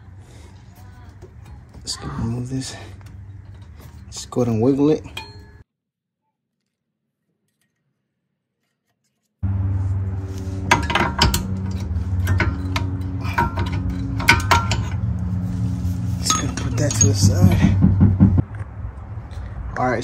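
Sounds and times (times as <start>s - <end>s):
metal brake pads clinking: 1.3s - 5.6s, 10.6s - 15.4s, 16.2s - 18.0s.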